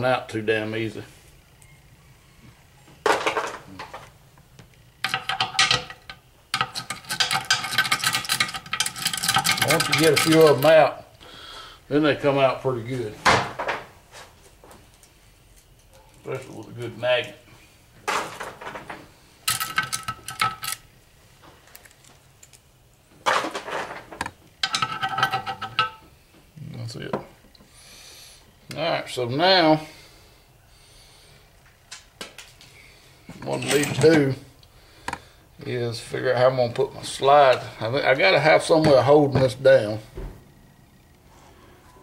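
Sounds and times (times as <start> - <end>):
screwdriver scraping metal bearing: 5.0 - 10.7
steel rollers clinking: 5.0 - 10.8, 24.6 - 26.0, 33.4 - 34.4.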